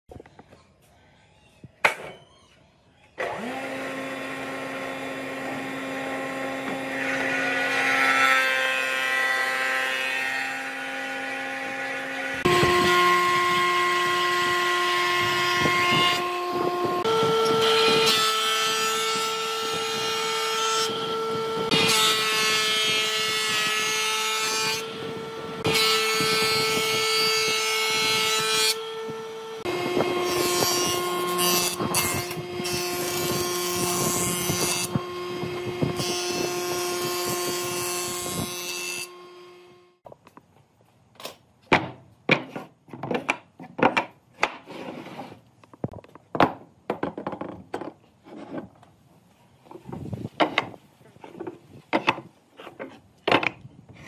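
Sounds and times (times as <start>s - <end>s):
power tools cutting wood: 3.2s - 40.0s.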